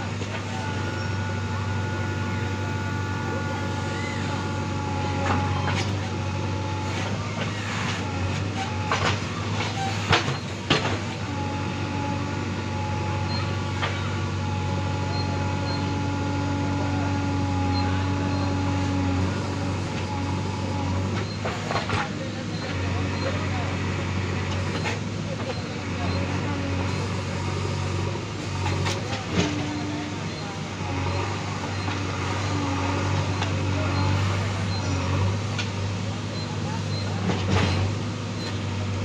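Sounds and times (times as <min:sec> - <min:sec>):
diesel engine running under load: 0:00.0 - 0:39.0.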